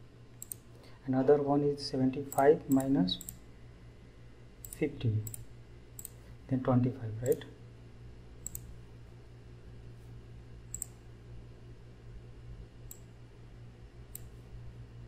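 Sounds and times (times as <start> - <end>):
steady low hum: 0.0 - 15.0
computer mouse clicking: 0.4 - 0.6, 2.3 - 3.4, 6.0 - 6.2, 8.4 - 8.7, 10.7 - 11.0, 12.9 - 13.1, 14.1 - 14.4.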